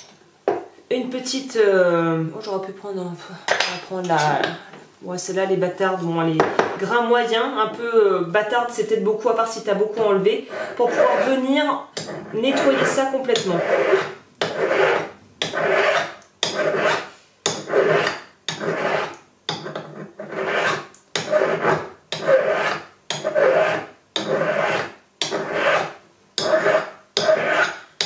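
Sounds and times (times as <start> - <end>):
file rasping on metal: 10.5 - 27.9.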